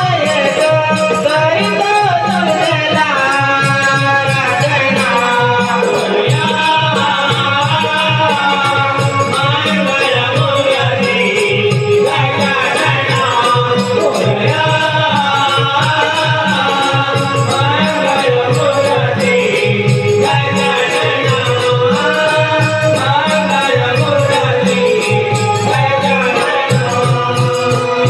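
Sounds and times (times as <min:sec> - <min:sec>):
jingling percussion: 0:00.0 - 0:28.0
steady drum rhythm: 0:00.0 - 0:28.0.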